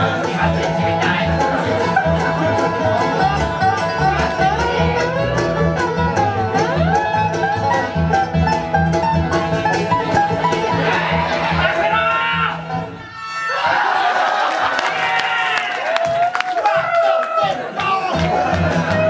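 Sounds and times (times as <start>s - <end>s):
banjo picking fast rolls: 0.0s - 13.0s, 16.7s - 19.0s
strummed acoustic guitars: 0.0s - 13.1s.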